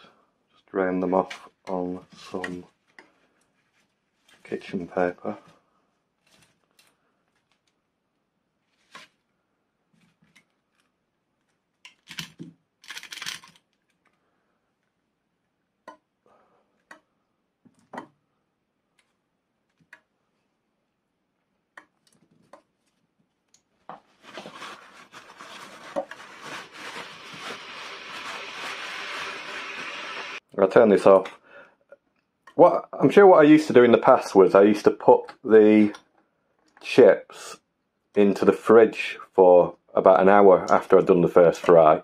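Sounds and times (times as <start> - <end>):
paper towel rustling and crinkling: 23.8 - 30.4.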